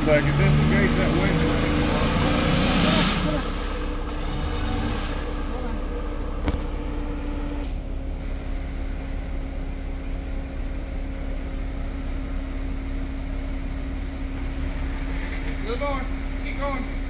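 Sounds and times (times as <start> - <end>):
vehicle engine idling: 0.0 - 17.0.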